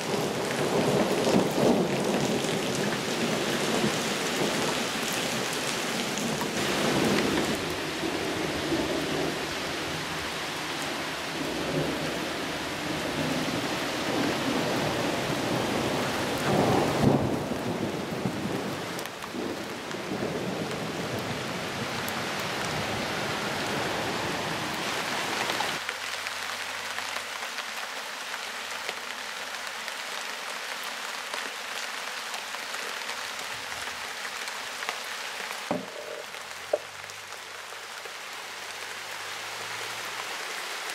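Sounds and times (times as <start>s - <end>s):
heavy rain pouring: 0.0s - 40.9s.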